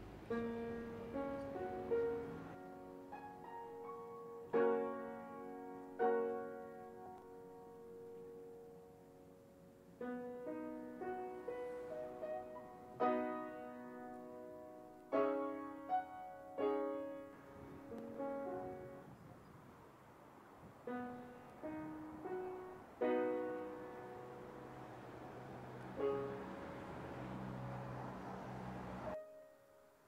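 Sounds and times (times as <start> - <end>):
slow piano chords: 0.0 - 30.0.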